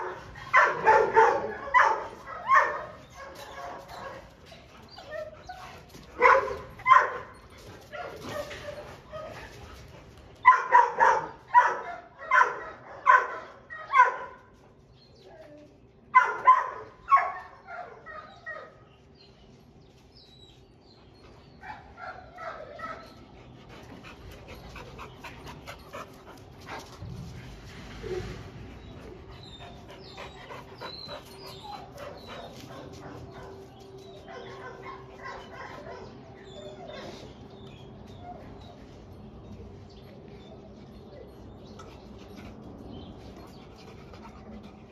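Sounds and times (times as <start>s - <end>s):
dog barking: 0.0s - 3.4s, 6.2s - 7.2s, 10.5s - 14.4s.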